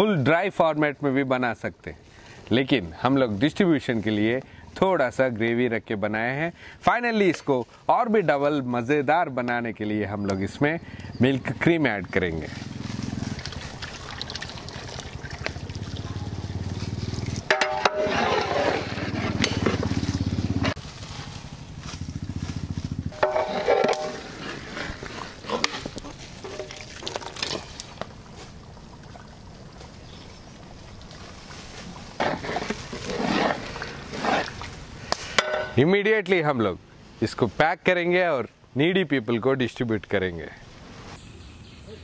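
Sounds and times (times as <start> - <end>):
metal ladle clinking on pot: 17.5 - 18.2.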